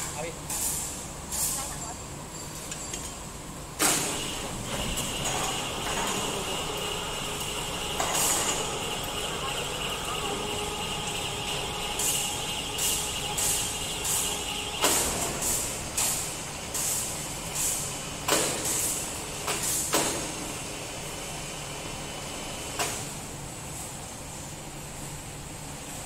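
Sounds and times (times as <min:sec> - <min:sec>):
pneumatic tool knock: 0:08.0 - 0:08.7, 0:12.8 - 0:20.5
compressed air hissing: 0:10.9 - 0:20.0.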